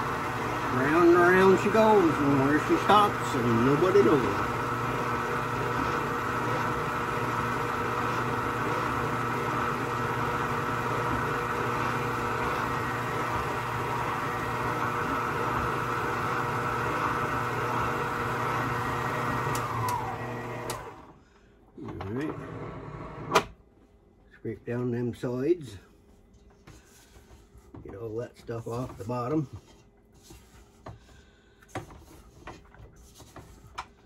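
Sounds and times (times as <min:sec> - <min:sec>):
electric mixer motor humming: 0:00.0 - 0:21.1.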